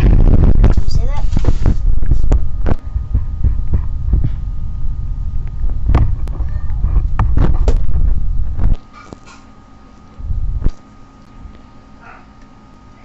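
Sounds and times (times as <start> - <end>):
loud microphone rumbling: 0.0 - 9.2, 10.2 - 10.8.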